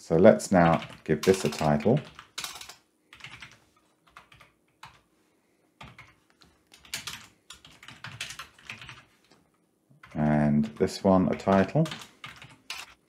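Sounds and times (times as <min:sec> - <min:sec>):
typing on computer keyboard: 0:00.6 - 0:05.0, 0:05.8 - 0:09.1, 0:10.0 - 0:13.0.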